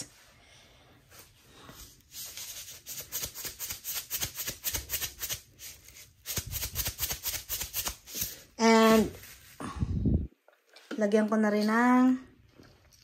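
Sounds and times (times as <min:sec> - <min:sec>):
salt shaker rattling: 0:02.8 - 0:08.4.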